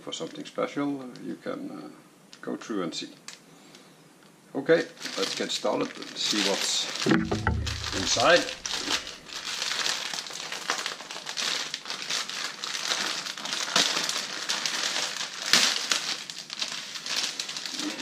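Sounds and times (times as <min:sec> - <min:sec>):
plastic wrapping crinkling: 0:05.0 - 0:18.0.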